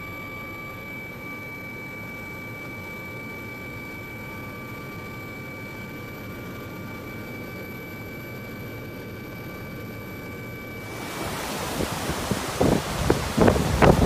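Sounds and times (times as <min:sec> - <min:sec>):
faint high whine: 0:00.0 - 0:14.0
helicopter low rumble: 0:10.8 - 0:14.0
muddy torrent rushing: 0:10.8 - 0:14.0
wind on microphone: 0:10.9 - 0:14.0.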